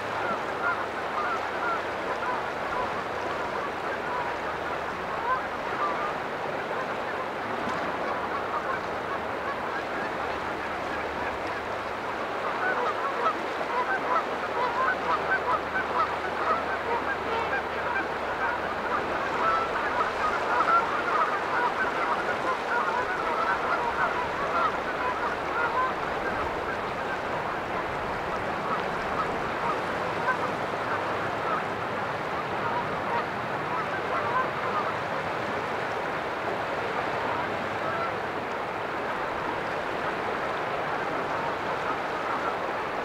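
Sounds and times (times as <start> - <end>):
geese honking: 0.1 - 6.1, 12.4 - 31.7, 32.4 - 35.0, 37.4 - 38.2, 40.9 - 42.7.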